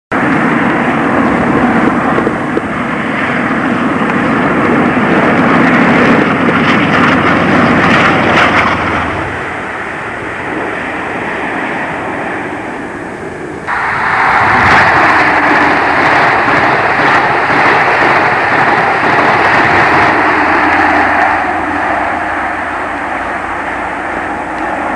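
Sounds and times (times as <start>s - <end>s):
diesel locomotive passing: 0.1s - 24.9s
high speed train rushing past: 0.1s - 24.9s.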